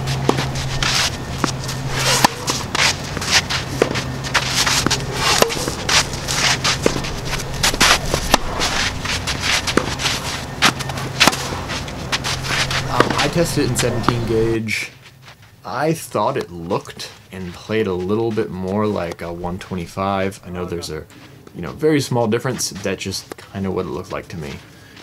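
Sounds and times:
tennis ball struck by racket: 0:00.0 - 0:13.3
tennis ball bouncing: 0:00.0 - 0:14.5
footsteps scuffing on clay: 0:00.0 - 0:25.0.

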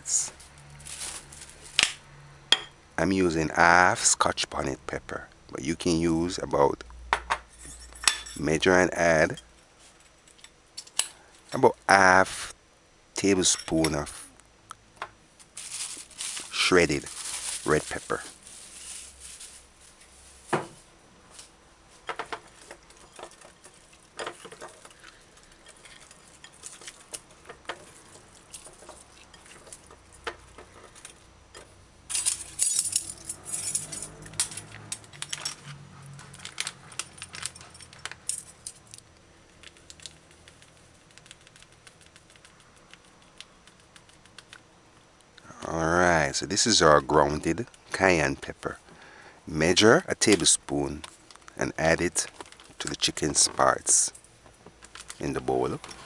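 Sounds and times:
metal spoons clinking on plate: 0:07.6 - 0:08.4.

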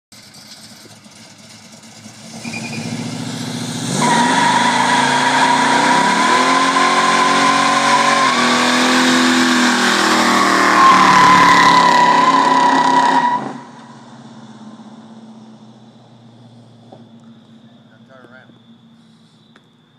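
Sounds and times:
tyres squealing on asphalt: 0:00.2 - 0:15.4
engine revving hard: 0:02.0 - 0:13.7.

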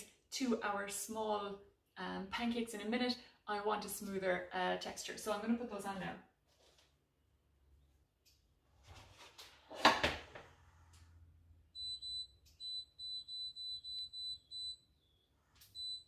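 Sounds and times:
short high beeps: 0:11.8 - 0:14.8.

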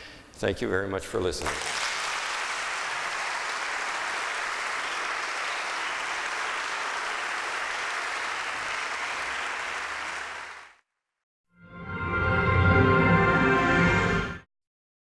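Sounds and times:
audience applauding: 0:01.4 - 0:10.8.

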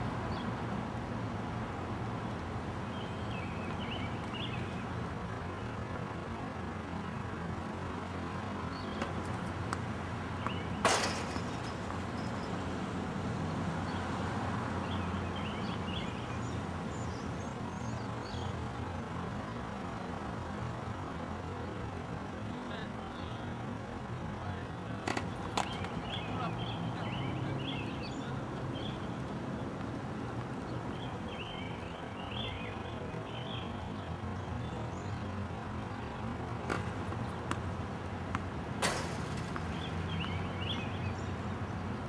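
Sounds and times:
small birds chirping: 0:02.2 - 0:06.0, 0:08.6 - 0:10.8, 0:11.5 - 0:12.8, 0:14.8 - 0:19.8, 0:24.4 - 0:37.8, 0:39.5 - 0:42.0.

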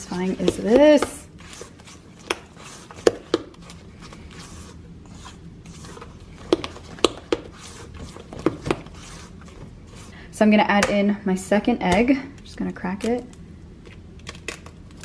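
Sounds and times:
spatula stirring thick dough: 0:00.0 - 0:10.3.

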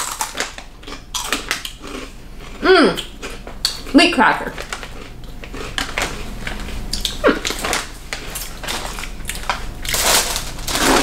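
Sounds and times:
cracker being chewed: 0:00.0 - 0:03.9, 0:04.6 - 0:11.0
plastic wrappers crinkling: 0:04.6 - 0:11.0.

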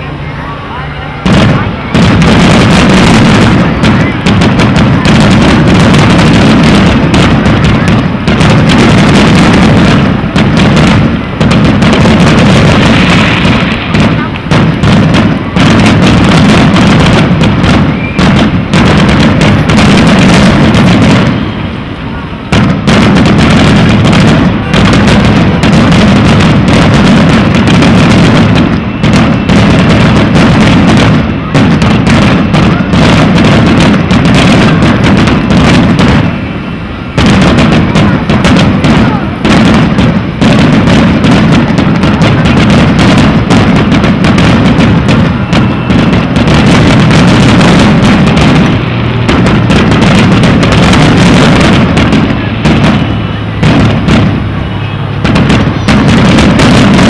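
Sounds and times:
fireworks shells bursting: 0:01.2 - 0:57.0.

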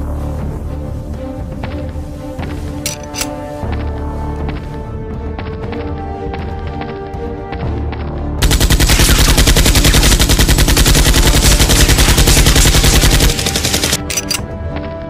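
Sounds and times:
background music: 0:00.0 - 0:15.0
automatic gunfire: 0:08.4 - 0:14.3.

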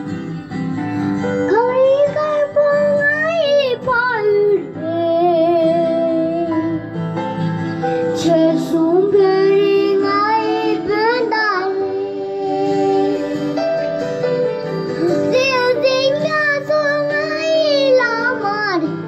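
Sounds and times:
instrumental backing music: 0:00.0 - 0:19.0
boy singing into a microphone: 0:01.4 - 0:06.9, 0:08.0 - 0:13.6, 0:14.9 - 0:19.0.

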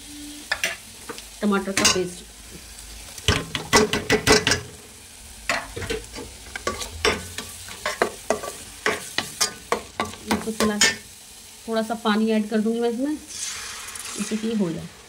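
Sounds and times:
spices sizzling in oil: 0:00.0 - 0:15.0.

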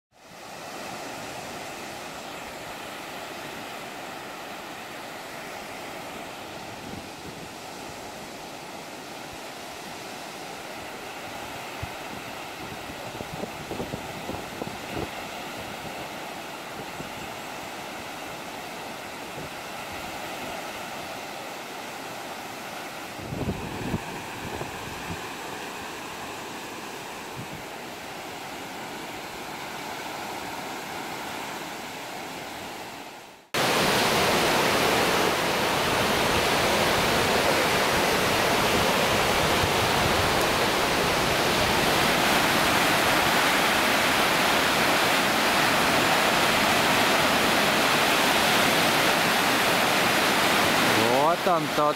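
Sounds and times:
waves washing onto beach: 0:00.1 - 0:51.9
loud steady rushing noise: 0:33.6 - 0:51.9.

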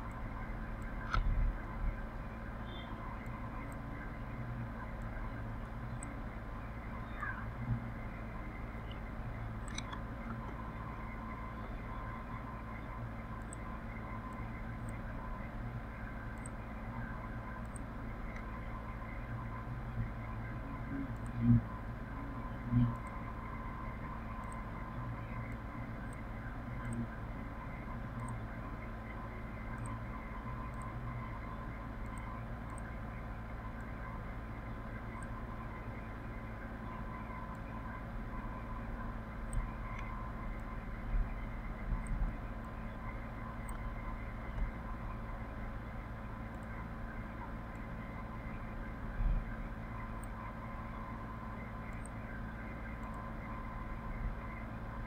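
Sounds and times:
microphone hum and hiss: 0:00.0 - 0:55.0
faint clicks: 0:00.8 - 0:01.8, 0:08.8 - 0:10.8, 0:16.3 - 0:18.7, 0:28.1 - 0:33.0, 0:36.4 - 0:45.5, 0:46.4 - 0:55.0.

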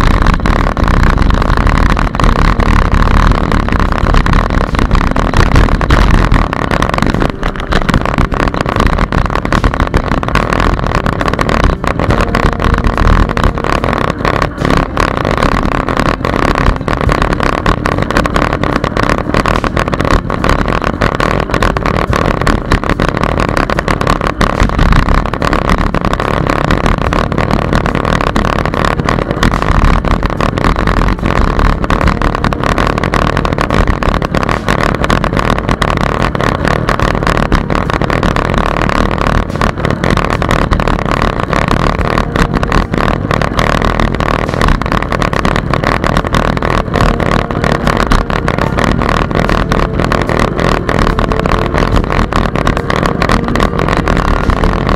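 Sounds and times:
wind roaring over microphone: 0:00.0 - 0:54.9.

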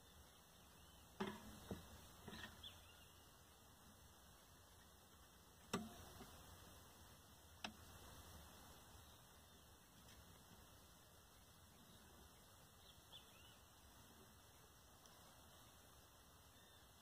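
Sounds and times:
metallic clicks of wire basket: 0:05.7 - 0:06.2.

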